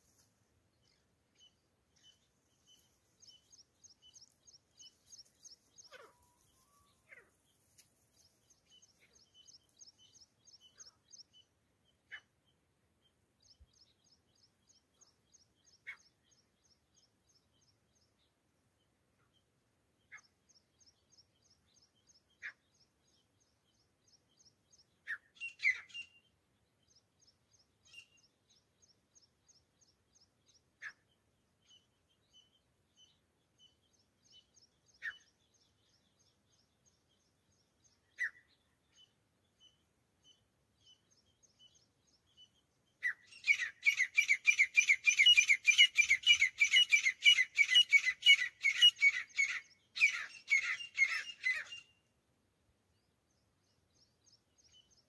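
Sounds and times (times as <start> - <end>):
small bird chirping: 0.0 - 18.4, 19.2 - 52.1
francolins calling: 0.9 - 7.4, 43.0 - 52.0.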